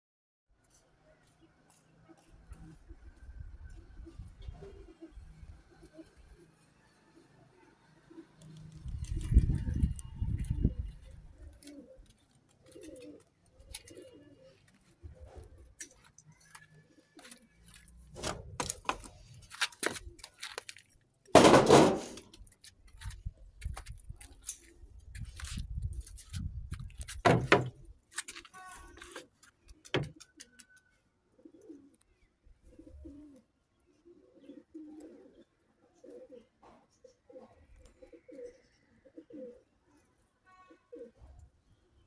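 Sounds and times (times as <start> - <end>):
pigeons cooing: 2.1 - 6.6, 7.2 - 17.6, 29.0 - 40.0, 40.7 - 42.0.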